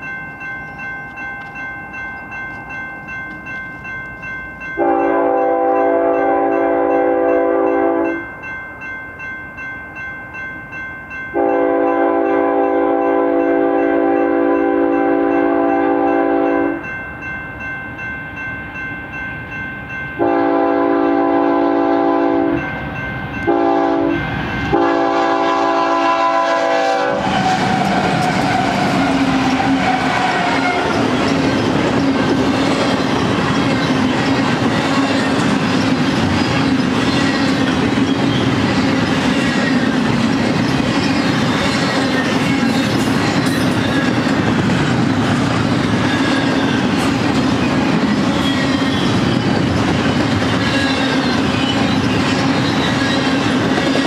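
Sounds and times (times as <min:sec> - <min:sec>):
crossing bell ringing: 0:00.0 - 0:54.0
locomotive air horn blasts: 0:04.8 - 0:08.2, 0:11.4 - 0:16.8, 0:20.2 - 0:22.6, 0:23.5 - 0:31.0
train wheels clattering: 0:23.4 - 0:54.0
locomotive engine: 0:26.6 - 0:54.0.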